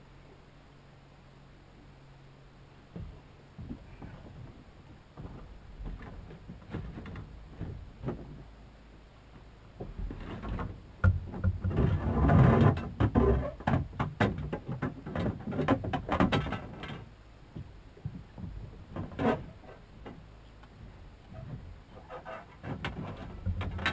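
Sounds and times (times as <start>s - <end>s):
knocks against boat hull: 9.8s - 16.9s.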